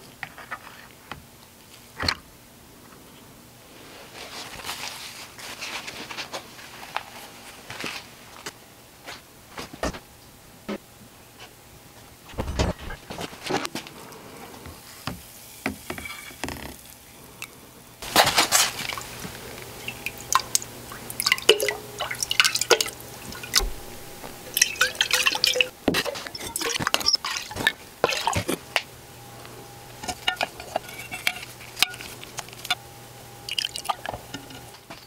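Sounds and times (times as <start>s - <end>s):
liquid sloshing and dripping: 18.2s - 28.6s, 33.4s - 34.8s
glass jars clinking: 21.1s - 28.9s, 30.0s - 32.8s, 33.5s - 35.0s.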